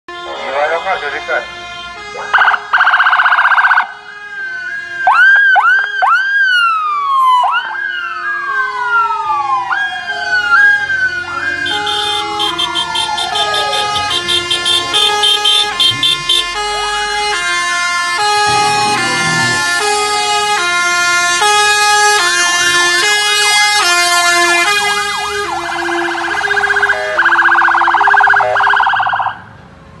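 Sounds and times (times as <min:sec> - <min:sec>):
emergency vehicle sirens: 0:00.1 - 0:30.0.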